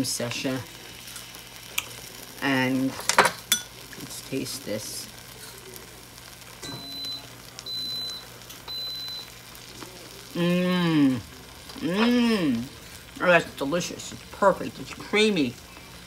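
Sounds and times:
short high beeps: 0:06.7 - 0:09.3
woman humming mmm: 0:10.3 - 0:12.7.

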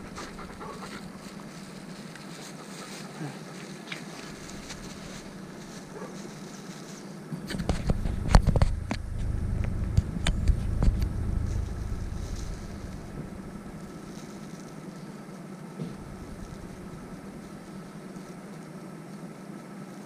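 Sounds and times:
low rumble: 0:00.0 - 0:00.9, 0:07.4 - 0:14.7, 0:15.8 - 0:18.4
plastic bag crinkling: 0:16.0 - 0:18.7.

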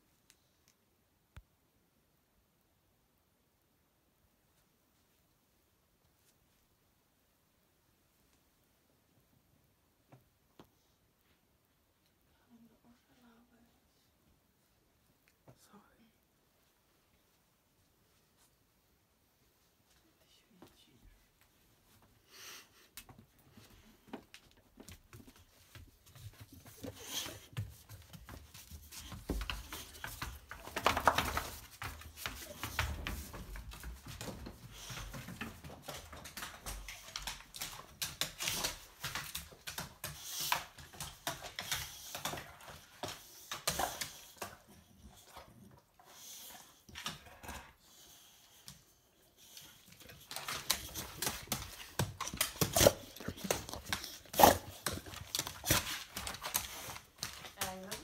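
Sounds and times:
dog scuffling and clicking: 0:23.5 - 0:45.8, 0:48.5 - 0:58.0.

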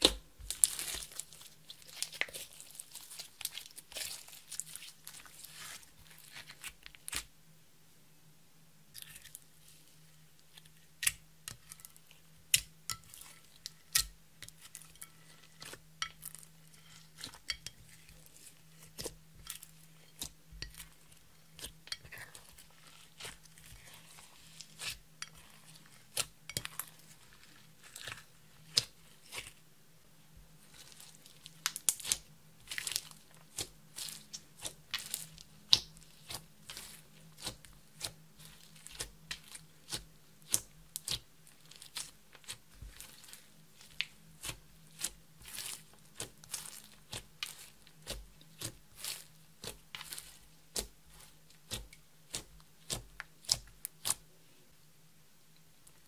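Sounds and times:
slime being squeezed crackling: 0:00.0 - 0:07.2, 0:30.7 - 0:54.2.

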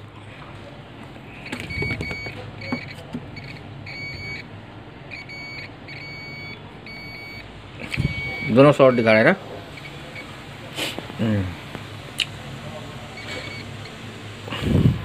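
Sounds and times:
multimeter continuity beeps: 0:01.4 - 0:04.5, 0:05.1 - 0:10.4, 0:13.1 - 0:14.0.

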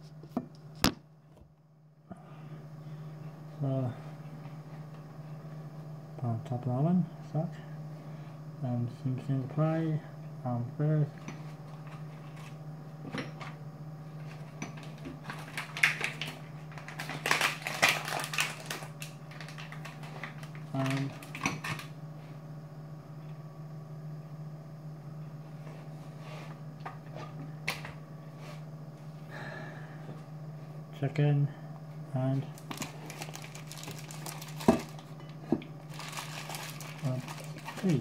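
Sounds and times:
food wrapping crinkling: 0:14.8 - 0:21.9, 0:32.5 - 0:35.1, 0:35.8 - 0:38.0.

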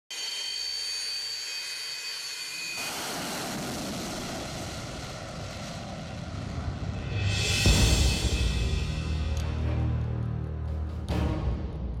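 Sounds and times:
jet engine high whine: 0:00.1 - 0:08.4
fighter jet taking off: 0:00.1 - 0:08.7.

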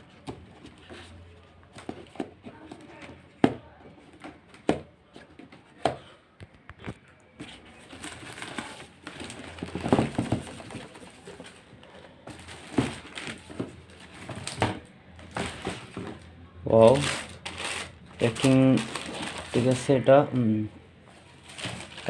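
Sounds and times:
packing and plastic bag rustling: 0:07.4 - 0:20.1, 0:21.1 - 0:22.0.

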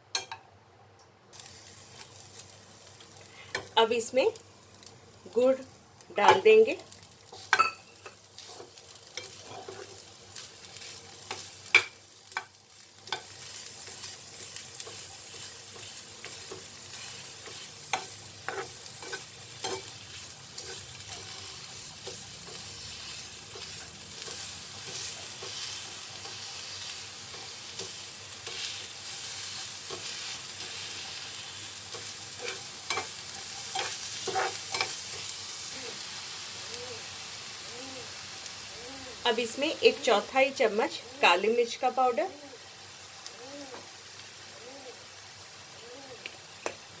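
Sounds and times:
spoon tapping on a pan: 0:00.1 - 0:00.5, 0:07.5 - 0:08.2, 0:11.3 - 0:13.3
steady sizzle: 0:01.3 - 0:47.0
spoon scraping a frying pan: 0:07.3 - 0:10.0, 0:10.8 - 0:35.3.

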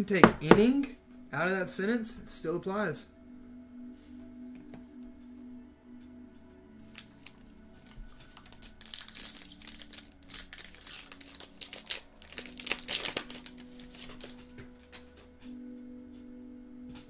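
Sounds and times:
foil wrapper tearing and crinkling: 0:06.9 - 0:15.2.

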